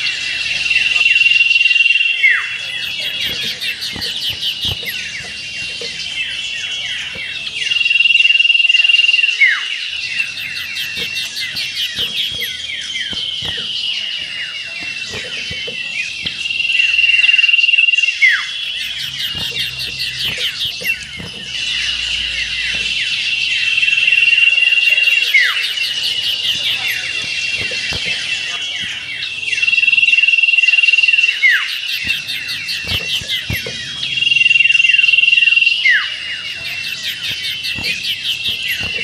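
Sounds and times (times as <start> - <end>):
bird twittering trills: 0.0 - 39.0.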